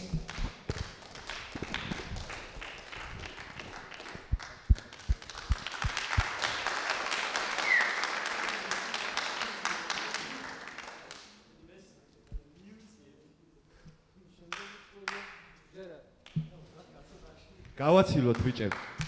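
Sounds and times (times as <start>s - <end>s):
audience applauding: 0.0s - 11.2s
low thumps: 1.6s - 6.2s.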